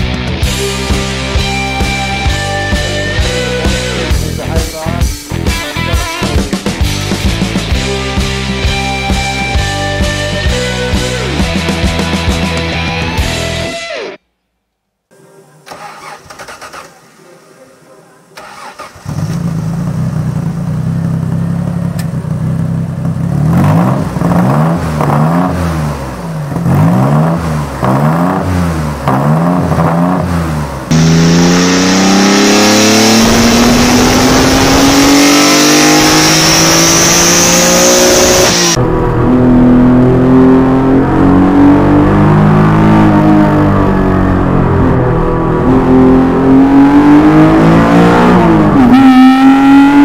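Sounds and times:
car engine idling and revving: 0.0 - 5.6, 18.3 - 50.0
engine accelerating with hiss: 23.5 - 41.0.

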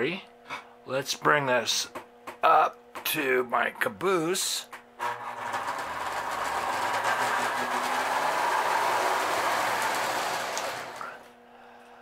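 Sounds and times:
toy train rumbling on rails: 5.0 - 11.2.

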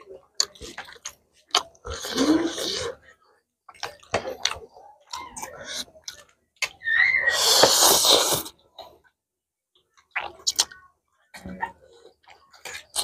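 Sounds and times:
soft chewing: 0.0 - 6.8, 7.6 - 13.0
loud noodle slurp: 7.2 - 8.5.

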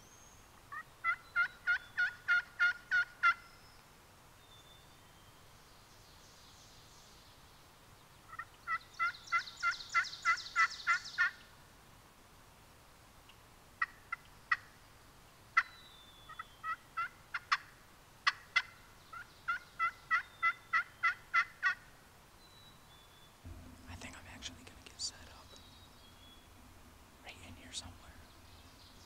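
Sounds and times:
turkey call clucks: 0.7 - 3.4, 8.3 - 11.4, 13.8 - 14.7, 16.3 - 21.9
turkey call yelps: 0.7 - 3.4, 8.3 - 11.4, 16.3 - 21.9.

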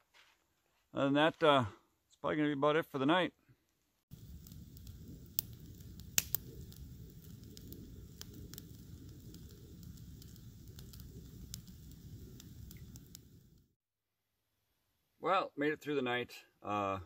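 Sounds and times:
low rumble: 4.1 - 13.7
campfire crackling: 4.1 - 13.8
fire popping: 4.1 - 13.8.

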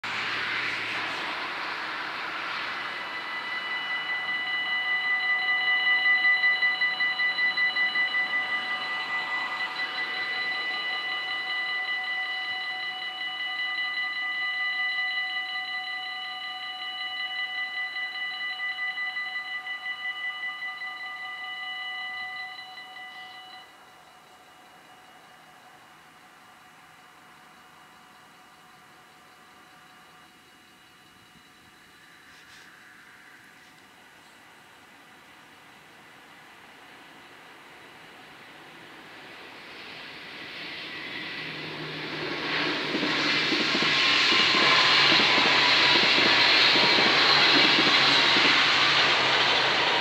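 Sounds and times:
car passing: 0.0 - 4.7, 38.6 - 50.0
level crossing warning bells: 1.3 - 50.0.

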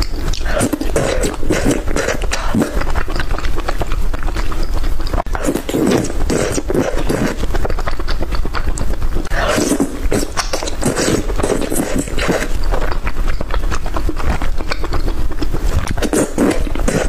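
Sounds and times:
chewing with sharp clicks: 0.0 - 17.0.

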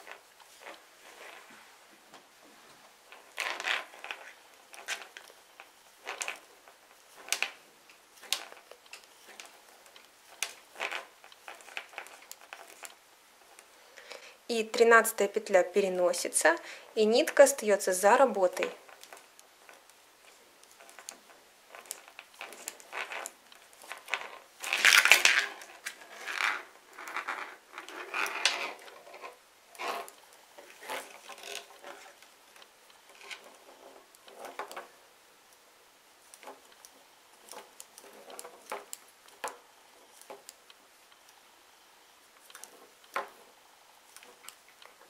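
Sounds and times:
yarn rustling: 0.0 - 13.9, 14.5 - 35.1.

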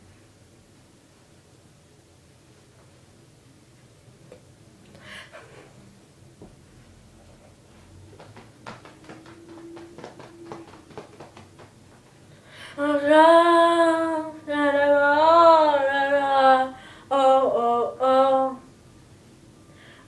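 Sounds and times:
soft humming: 3.8 - 18.9.

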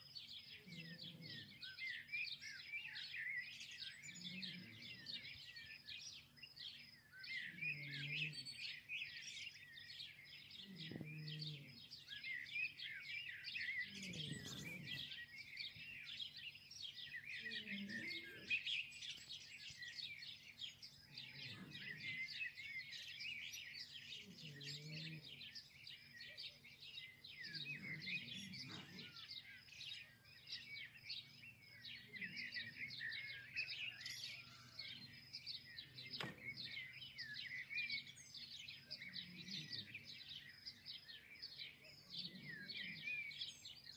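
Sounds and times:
small birds chirping: 0.0 - 43.9.

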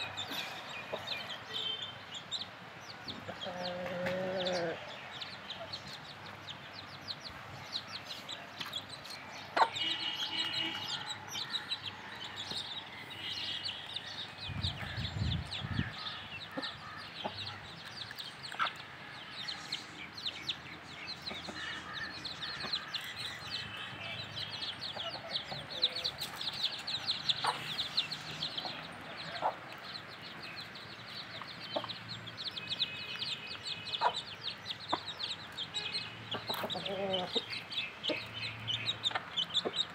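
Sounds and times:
chicks peeping: 0.0 - 39.9
hens clucking: 3.2 - 4.9, 27.4 - 27.9, 36.3 - 38.3.

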